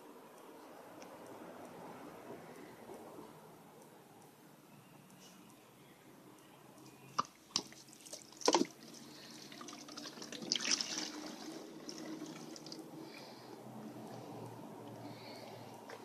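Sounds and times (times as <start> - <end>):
liquid dripping: 6.4 - 16.0
splashy trickle: 7.5 - 12.9.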